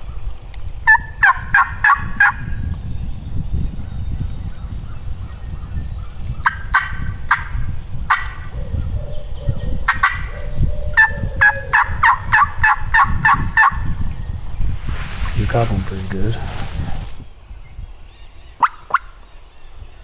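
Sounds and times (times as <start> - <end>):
turkey yelps: 0.9 - 2.4, 9.9 - 13.8, 18.6 - 19.1.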